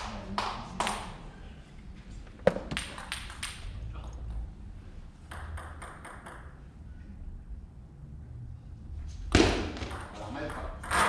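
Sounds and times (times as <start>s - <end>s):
table tennis ball bouncing: 2.4s - 3.7s, 5.2s - 6.7s, 9.3s - 11.0s.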